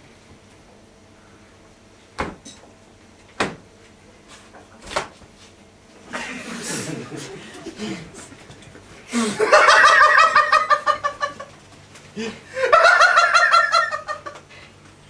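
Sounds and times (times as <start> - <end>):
man cackling laugh: 6.1 - 8.4, 9.1 - 11.6, 12.2 - 14.5.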